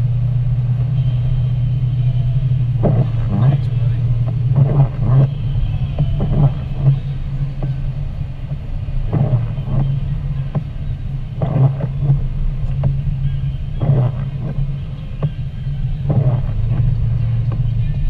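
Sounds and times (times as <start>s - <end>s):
car driving on wet road: 0.0s - 18.0s
short swishes and knocks: 8.4s - 13.1s.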